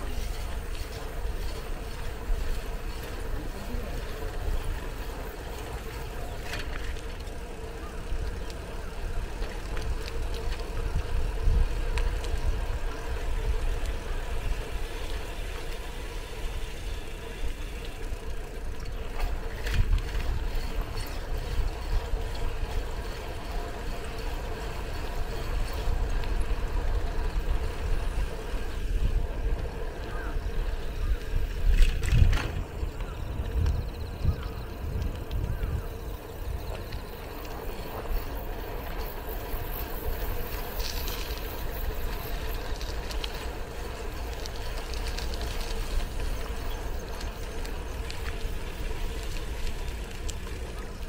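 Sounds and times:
bicycle clicks and rattles: 0.0s - 51.0s
bicycle tyres rumbling on road: 0.0s - 51.0s
wind on microphone: 25.2s - 43.5s.

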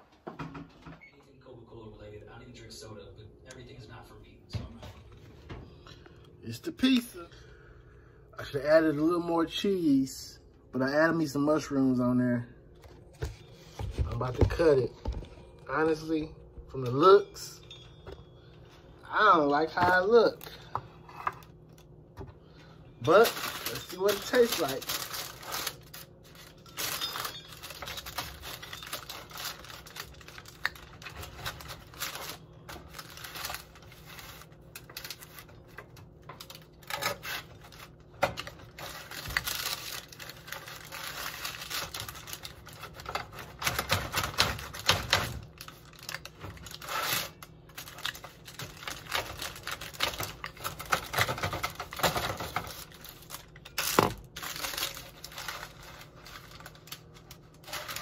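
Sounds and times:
parchment paper rustling: 22.4s - 58.0s.

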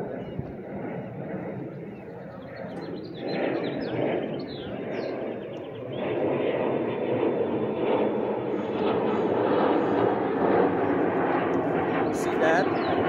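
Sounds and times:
distant engine rumble: 6.5s - 13.0s.

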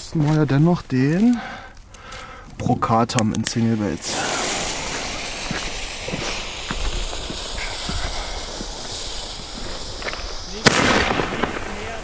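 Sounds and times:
fuse burning with a hiss: 0.0s - 12.0s.

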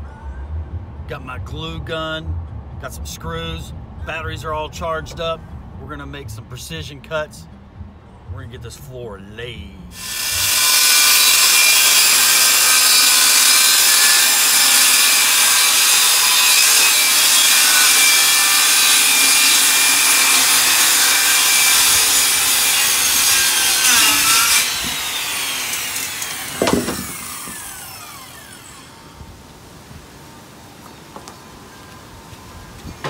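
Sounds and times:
circular saw cutting plywood: 10.0s - 29.2s
sharp knock: 26.6s - 27.6s.

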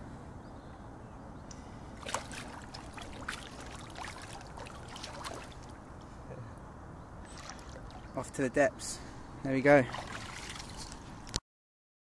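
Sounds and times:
water drips: 2.0s - 6.1s
water splashing and trickling: 2.0s - 6.2s, 7.2s - 8.7s, 9.5s - 11.4s.

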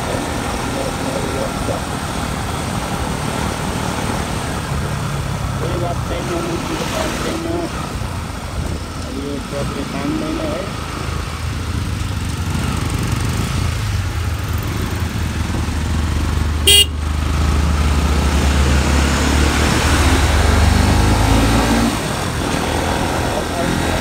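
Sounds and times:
motorcycle engine running: 0.0s - 20.7s
horn beep: 16.6s - 17.0s.

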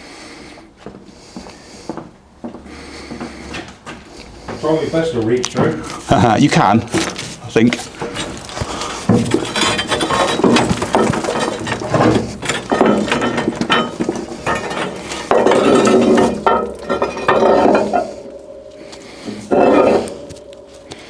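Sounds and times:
metal parts clinking and scraping: 7.9s - 21.0s
metal strikes: 12.5s - 21.0s.

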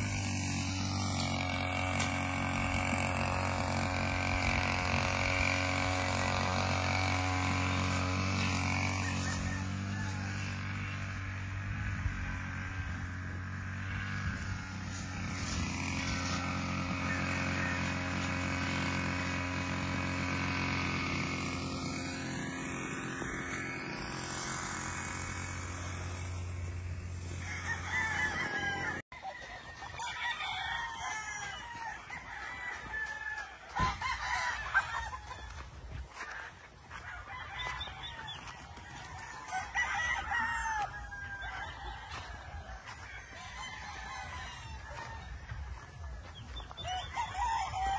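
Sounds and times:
roosters crowing: 0.0s - 47.9s
hens clucking: 25.6s - 47.9s.

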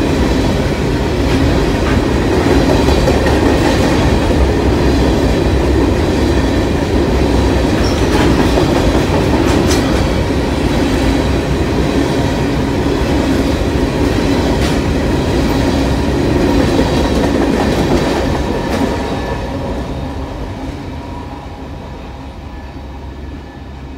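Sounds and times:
train wheels rumbling on rails: 0.0s - 23.9s.

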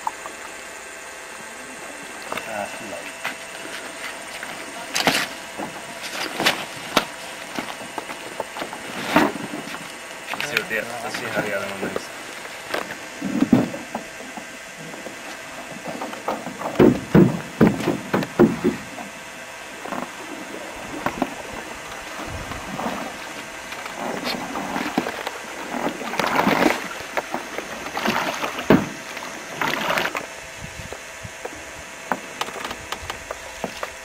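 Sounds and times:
paddles knocking against canoe: 3.1s - 30.3s, 30.9s - 34.0s
paddle strokes splashing water: 19.7s - 30.3s.

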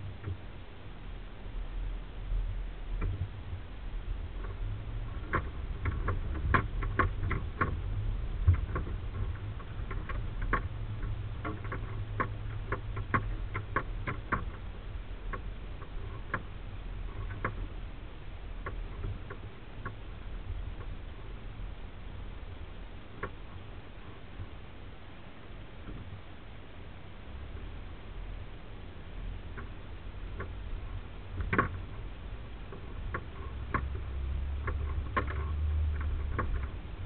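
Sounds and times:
interior clicks and rattles: 4.3s - 21.6s, 29.4s - 37.0s.

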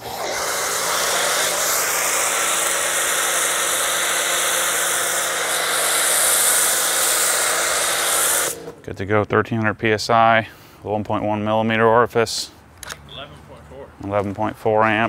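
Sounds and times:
foam cannon spray hiss: 0.0s - 8.8s
pressure washer motor and pump: 0.0s - 8.9s.

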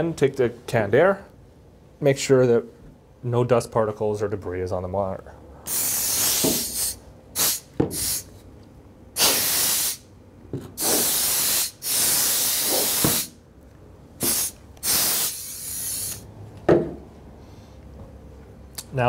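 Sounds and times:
compressed air duster hissing: 5.7s - 8.4s, 9.2s - 10.1s, 10.8s - 13.4s, 14.2s - 16.3s.

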